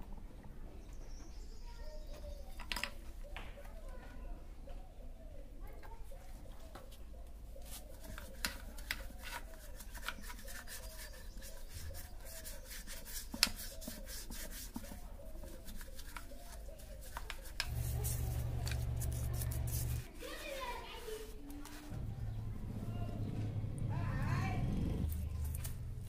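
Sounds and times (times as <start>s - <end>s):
hands rubbing wheel parts: 6.7s - 22.1s.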